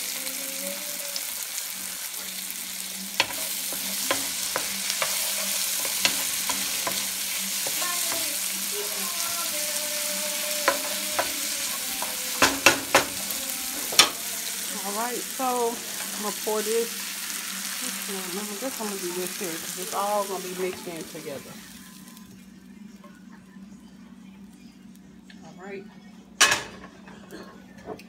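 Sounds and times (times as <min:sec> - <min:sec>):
vegetables sizzling in oil: 0:00.0 - 0:22.3
wooden spoon knocking against pan: 0:12.0 - 0:14.2.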